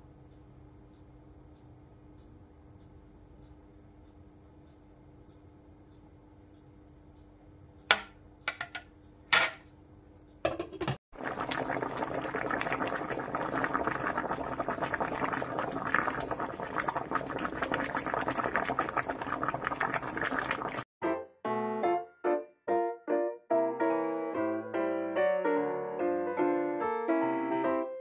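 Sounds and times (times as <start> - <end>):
water boiling: 10.5 - 20.9.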